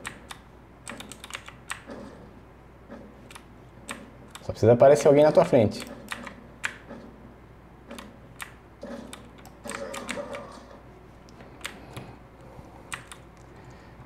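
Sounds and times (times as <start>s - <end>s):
keyboard keys clicking: 0.0s - 1.9s, 3.3s - 6.9s, 7.9s - 10.5s, 11.6s - 12.1s, 12.9s - 13.5s.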